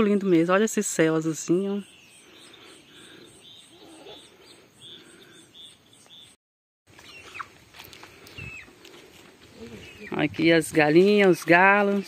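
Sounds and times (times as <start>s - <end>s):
chickens calling: 0.0s - 6.3s, 6.9s - 12.0s
insects chirping: 0.2s - 6.3s
faint bird calls: 1.8s - 6.4s.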